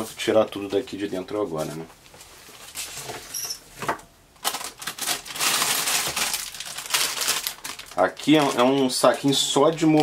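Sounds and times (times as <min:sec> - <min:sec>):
plastic bags and paper crinkling: 0:04.4 - 0:10.0.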